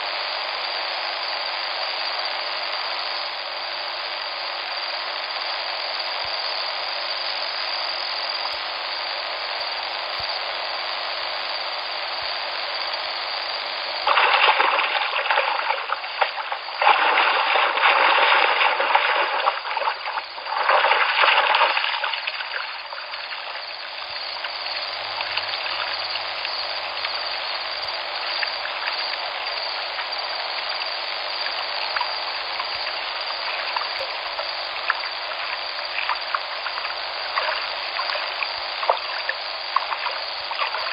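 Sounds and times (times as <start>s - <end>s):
river water flowing: 13.6s - 40.9s
rushing water surges: 13.9s - 40.9s.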